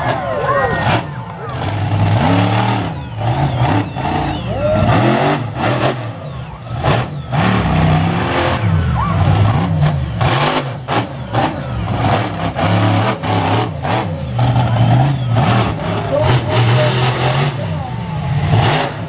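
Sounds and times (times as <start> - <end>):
truck engine revving hard: 0.0 - 19.0.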